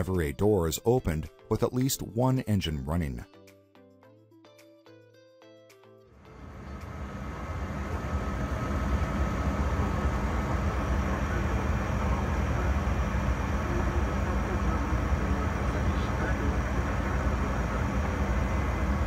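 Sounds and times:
faint high whine: 0:06.3 - 0:19.0
jet cabin engine rumble: 0:06.3 - 0:19.0.

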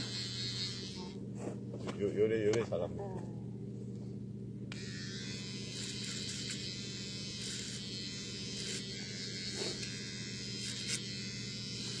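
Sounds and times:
clippers rasping through hair: 0:00.0 - 0:01.2, 0:04.7 - 0:12.0
electric hair clippers buzzing: 0:00.0 - 0:01.2, 0:04.7 - 0:12.0.

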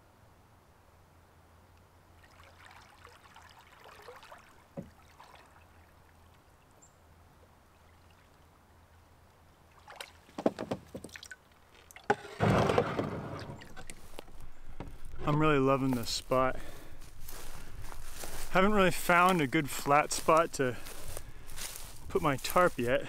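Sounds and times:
water splashing: 0:02.1 - 0:06.8, 0:09.6 - 0:14.4
water sloshing against canoe: 0:02.2 - 0:06.8, 0:09.7 - 0:16.0.

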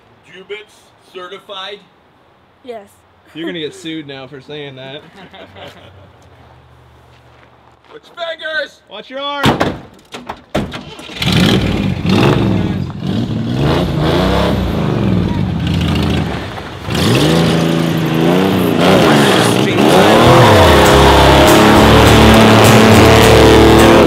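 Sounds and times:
tyres on gravel: 0:05.6 - 0:08.7, 0:15.4 - 0:23.0
car engine revving: 0:11.0 - 0:24.0.

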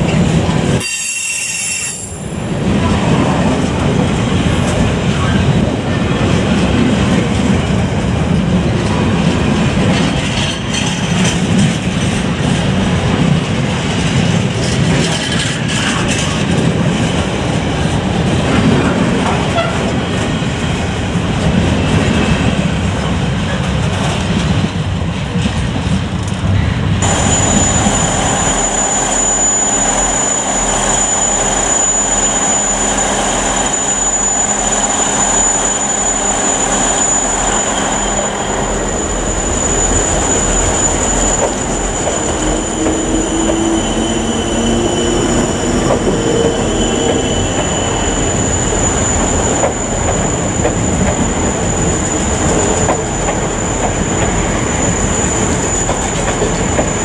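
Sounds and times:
freight train wheels rumbling: 0:00.0 - 0:57.0
electric train high-pitched tone: 0:00.1 - 0:03.4, 0:19.4 - 0:21.0, 0:27.0 - 0:57.0.

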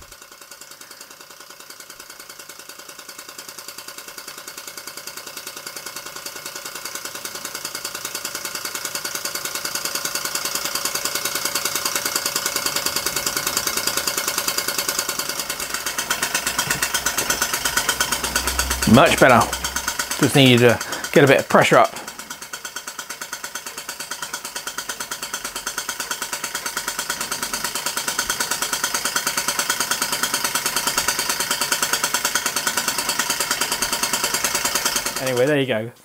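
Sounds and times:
model steam engine running: 0:00.0 - 0:36.0
band saw cutting metal: 0:09.8 - 0:35.8.

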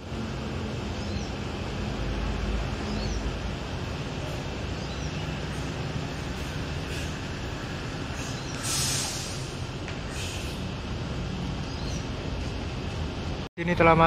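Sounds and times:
air brakes hissing: 0:06.3 - 0:10.7.

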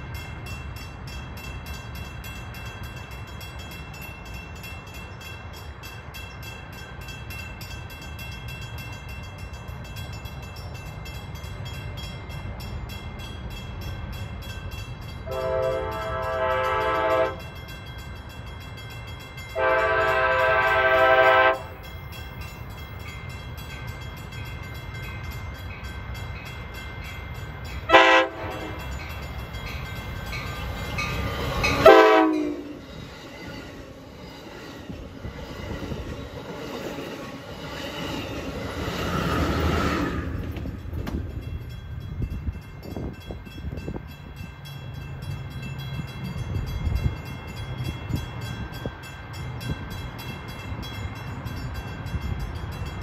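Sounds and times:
train horn blasts: 0:15.2 - 0:17.6, 0:19.6 - 0:21.8, 0:27.9 - 0:28.8, 0:31.7 - 0:32.8.

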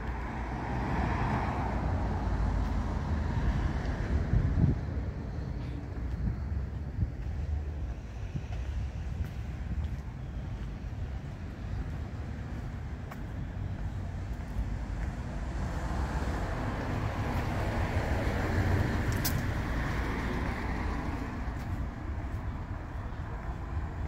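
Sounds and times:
car passing: 0:00.0 - 0:06.7, 0:14.1 - 0:24.0
steady low rumble: 0:02.1 - 0:24.0.

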